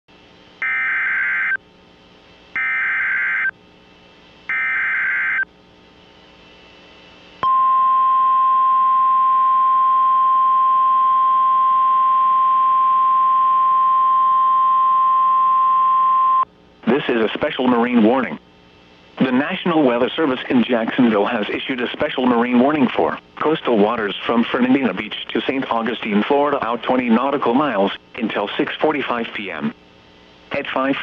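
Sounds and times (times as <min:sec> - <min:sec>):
steady single-pitch alarm tone: 0:00.6 - 0:01.6, 0:02.6 - 0:03.6, 0:04.5 - 0:05.5, 0:07.4 - 0:16.4.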